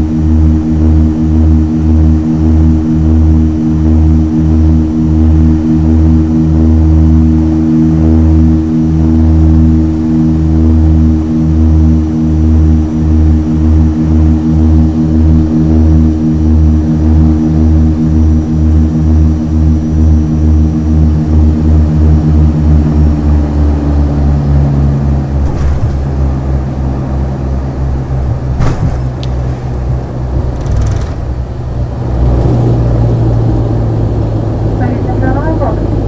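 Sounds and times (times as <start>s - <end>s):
turboprop engines droning: 0.0s - 36.0s
aircraft landing thumps: 25.1s - 31.8s.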